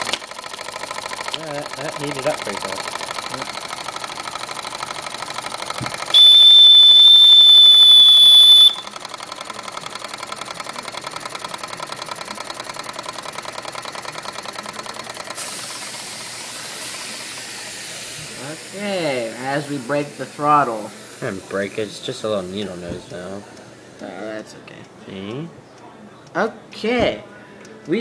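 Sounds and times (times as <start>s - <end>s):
steam engine chuffing: 0.0s - 22.8s
steam whistle blowing: 6.1s - 8.9s
steam hissing: 15.2s - 22.8s.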